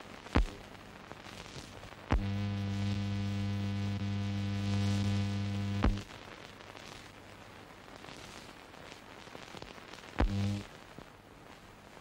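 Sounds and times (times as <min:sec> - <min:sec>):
buzzy electrical mains hum: 0:00.0 - 0:12.0.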